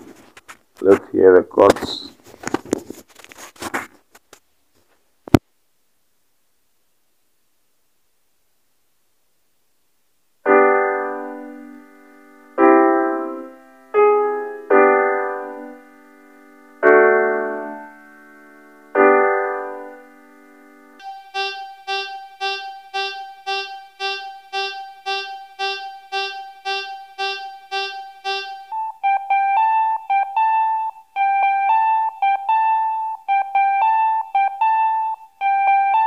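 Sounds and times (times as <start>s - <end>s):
piano chords ringing: 10.6s - 28.9s
electric guitar plucked notes: 21.0s - 29.5s.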